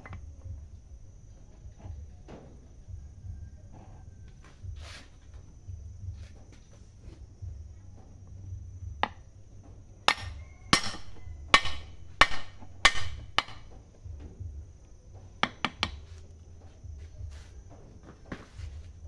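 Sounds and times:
metal knocks on steel shaft: 0:10.1 - 0:14.5.

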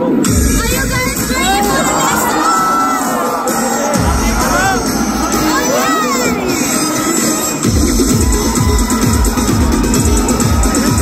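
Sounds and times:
audience shouting and cheering: 0:00.0 - 0:11.0
pop song over sound system: 0:00.0 - 0:11.0.

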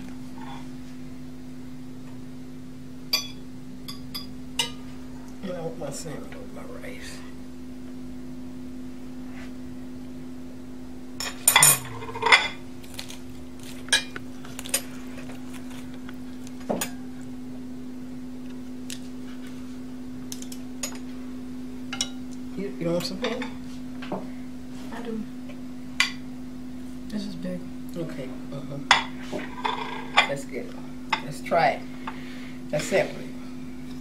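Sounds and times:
steady low hum: 0:00.0 - 0:34.0
utensils clinking on plates: 0:11.2 - 0:12.6, 0:28.9 - 0:30.4.

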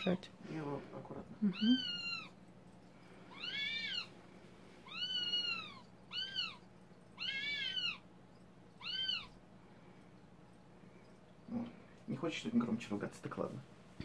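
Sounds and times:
owl squealing calls: 0:01.5 - 0:02.4, 0:03.3 - 0:04.2, 0:04.8 - 0:08.1, 0:08.7 - 0:09.4.

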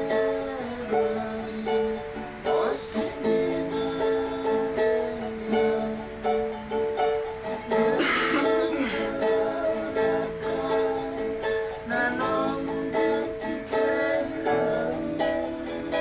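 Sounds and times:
ukulele strumming chords: 0:00.0 - 0:16.0.

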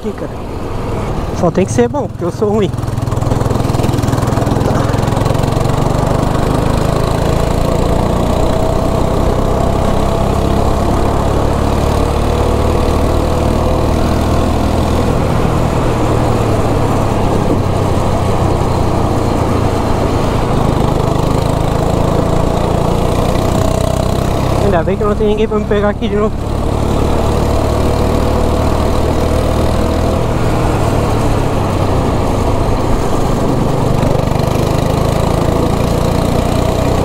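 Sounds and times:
go-kart engine running: 0:00.0 - 0:37.0.

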